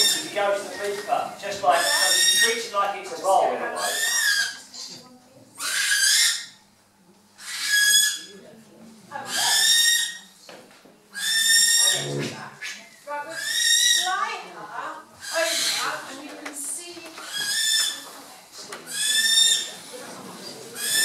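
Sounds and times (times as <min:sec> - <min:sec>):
barn owl screeching: 0:00.0 - 0:00.4, 0:01.7 - 0:02.7, 0:03.8 - 0:04.7, 0:05.6 - 0:06.6, 0:07.4 - 0:08.4, 0:09.3 - 0:10.3, 0:11.2 - 0:14.2, 0:15.2 - 0:16.0, 0:17.2 - 0:18.0, 0:18.9 - 0:19.8, 0:20.8 - 0:21.0.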